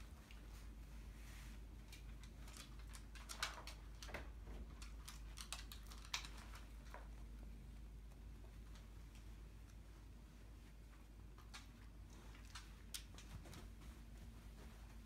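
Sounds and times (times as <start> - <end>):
dog claws clicking on wood floor: 1.9 - 7.1.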